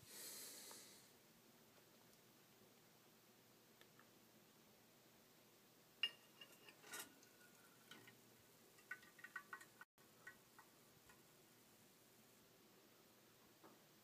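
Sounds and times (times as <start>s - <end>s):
metal cups clinking: 6.0s - 11.2s.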